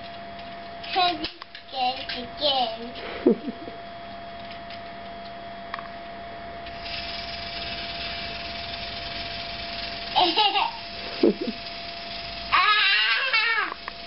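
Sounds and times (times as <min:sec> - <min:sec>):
toy train motor whirring: 0:00.8 - 0:03.1, 0:06.6 - 0:14.0
child's voice: 0:00.9 - 0:03.0.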